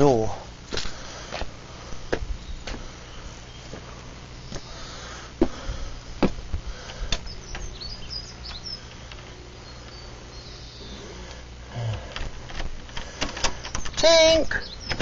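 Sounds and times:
small bird chirping: 0:07.2 - 0:11.2, 0:13.6 - 0:15.0.

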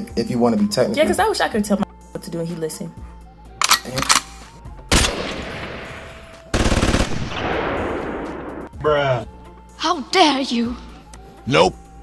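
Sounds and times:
gun clicks: 0:03.6 - 0:05.2
loud gunshot: 0:04.9 - 0:06.2, 0:06.8 - 0:08.7
automatic gunfire burst: 0:06.5 - 0:07.7.

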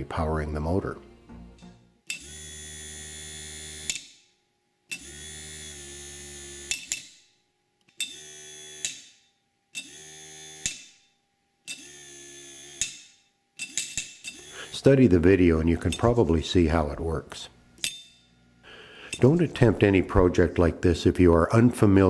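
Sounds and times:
small motor humming: 0:02.1 - 0:04.0, 0:04.9 - 0:06.9, 0:08.0 - 0:09.1, 0:09.8 - 0:10.9, 0:11.7 - 0:13.0, 0:13.6 - 0:14.9.

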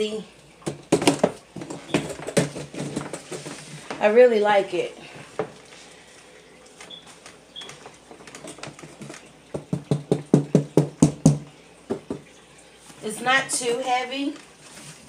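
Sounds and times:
hand knocking on case panels: 0:09.0 - 0:12.2.

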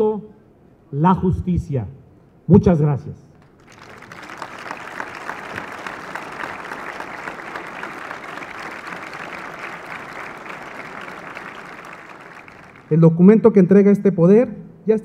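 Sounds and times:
audience applauding: 0:03.4 - 0:13.1.

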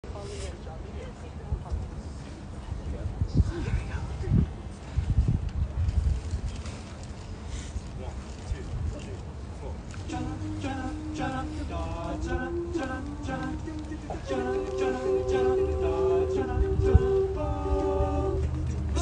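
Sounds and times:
a cappella group singing: 0:10.1 - 0:19.0.

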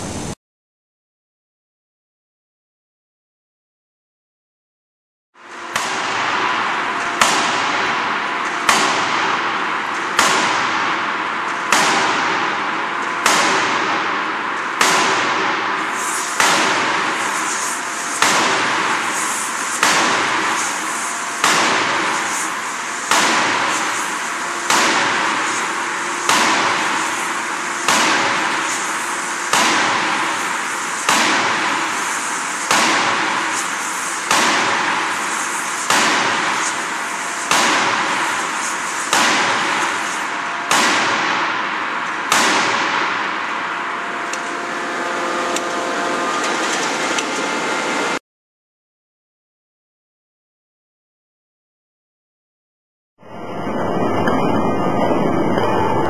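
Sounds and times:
steady machine hum: 0:05.4 - 0:48.2, 0:53.2 - 0:56.0
forging hammer bangs: 0:05.6 - 0:40.0, 0:40.6 - 0:44.0.

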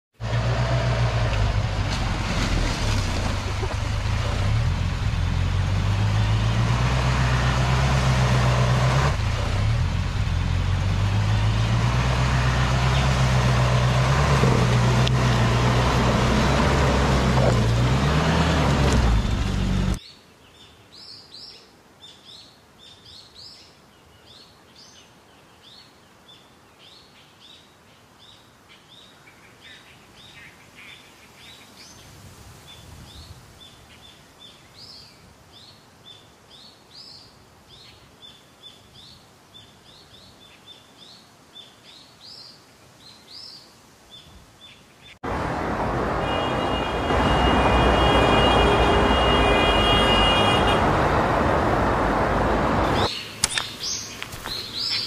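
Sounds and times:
buggy engine running: 0:00.2 - 0:20.0
vehicle driving through muddy water: 0:00.2 - 0:20.0, 0:45.3 - 0:53.1.

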